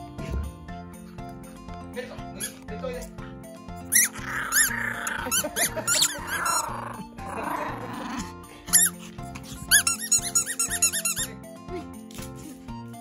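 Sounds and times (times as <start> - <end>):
background music: 0.0 - 13.0
squeaky toy ball squeaking: 2.4 - 2.6, 3.9 - 6.9, 8.7 - 9.0, 9.6 - 11.4
puppy growling: 3.9 - 10.8.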